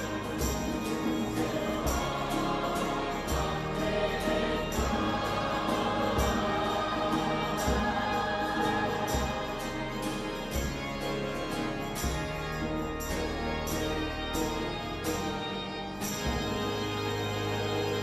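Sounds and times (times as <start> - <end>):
youth choir singing a hymn: 0.0 - 12.2
acoustic guitar: 0.0 - 18.0
violins: 0.0 - 18.0.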